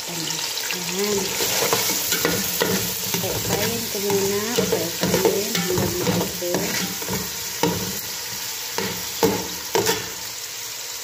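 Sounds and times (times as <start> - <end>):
vegetables sizzling in a pot: 0.0 - 11.0
metal ladle scraping a pot: 1.2 - 10.3.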